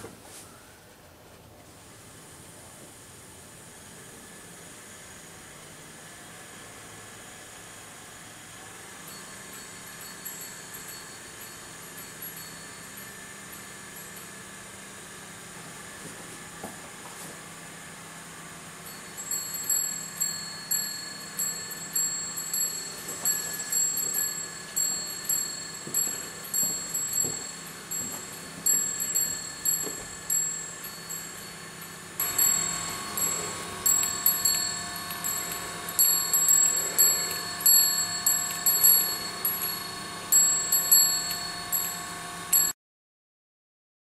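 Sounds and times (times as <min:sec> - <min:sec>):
small metal bells dinging: 0:09.0 - 0:14.8, 0:18.8 - 0:42.7.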